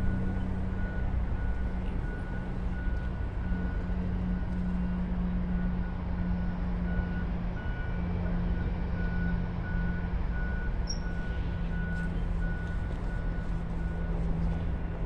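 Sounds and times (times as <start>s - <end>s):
reversing alarm beeping: 0.0s - 14.7s
heavy vehicle engine hum: 0.0s - 15.0s.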